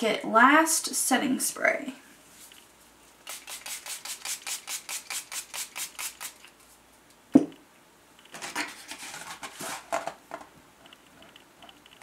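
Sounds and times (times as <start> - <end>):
spray bottle hissing puffs: 3.3 - 6.4.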